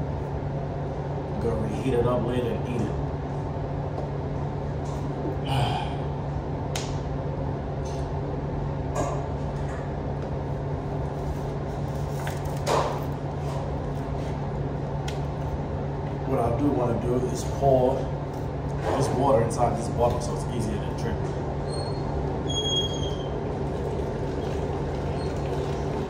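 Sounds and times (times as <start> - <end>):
low room hum: 0.0 - 26.0.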